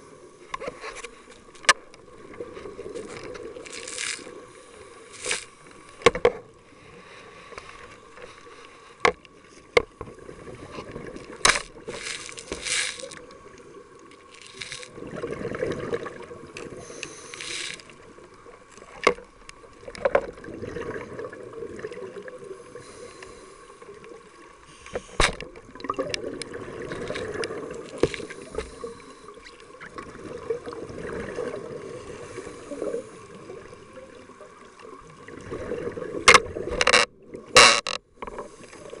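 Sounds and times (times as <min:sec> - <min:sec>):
underwater bubbles rushing and gurgling: 0:00.0 - 0:39.0
dive gear clicks and knocks: 0:36.3 - 0:38.4.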